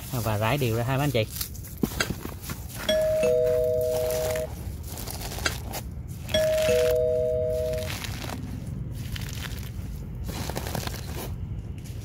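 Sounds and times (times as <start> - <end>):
two-note ding-dong chime: 2.8 - 4.5, 6.3 - 7.9
eggshells crushed by hand: 7.6 - 11.4.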